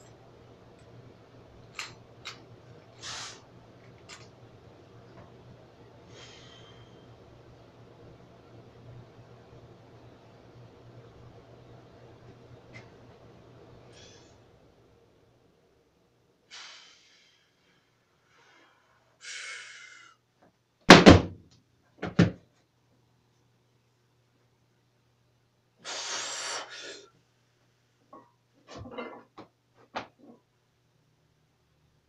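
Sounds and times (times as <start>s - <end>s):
hissing breaths: 3.0s - 3.5s, 25.8s - 27.2s.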